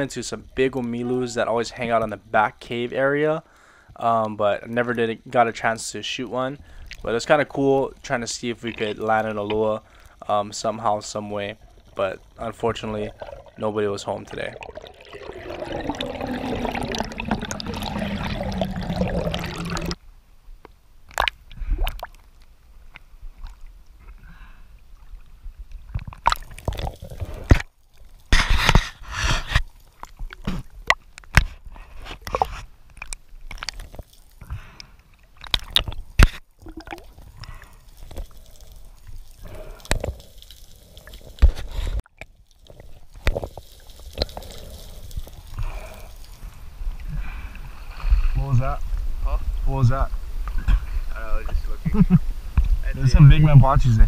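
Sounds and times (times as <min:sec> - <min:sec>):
water sloshing and gurgling: 0:06.6 - 0:20.0, 0:24.8 - 0:48.3
water rush falling in pitch: 0:12.8 - 0:20.0.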